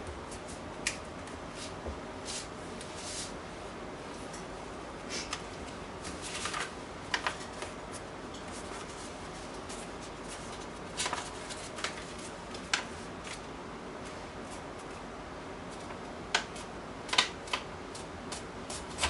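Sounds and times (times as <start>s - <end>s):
card paper rustling and crackling: 6.1s - 13.4s.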